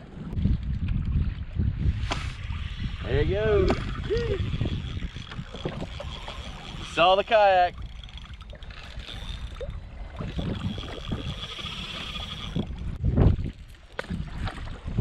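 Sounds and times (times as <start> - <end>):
water lapping against hull: 0.0 - 15.0
wind rumble: 0.0 - 15.0
fishing reel whirring: 2.4 - 13.0.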